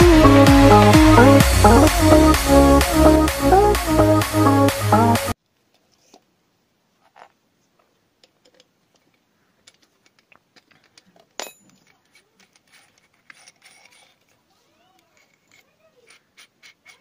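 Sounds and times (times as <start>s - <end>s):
drill chuck clicks and rattles: 8.2s - 14.4s.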